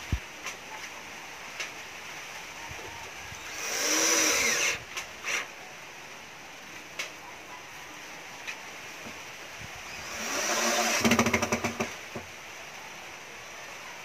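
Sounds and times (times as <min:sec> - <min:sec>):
cordless drill driving screw: 0:03.4 - 0:05.5, 0:10.0 - 0:11.9.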